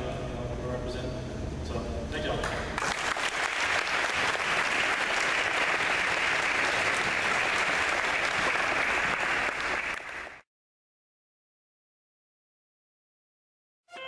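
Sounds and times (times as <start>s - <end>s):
audience applauding: 2.8s - 10.4s.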